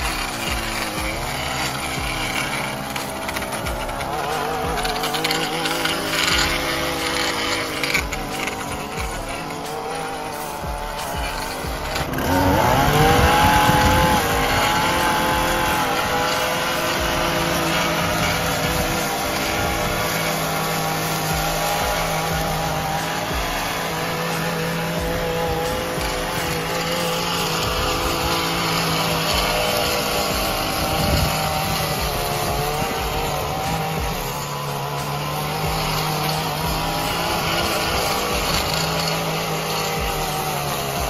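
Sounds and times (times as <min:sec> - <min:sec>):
edger engine cutting grass: 0:00.0 - 0:41.0.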